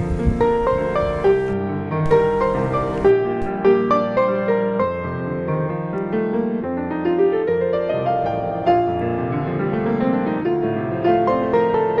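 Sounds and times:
piano tune: 0:00.0 - 0:12.0.

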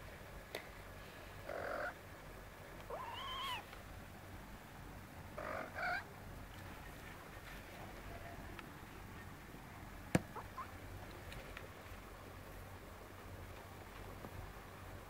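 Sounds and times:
cats meowing: 0:02.9 - 0:03.7.

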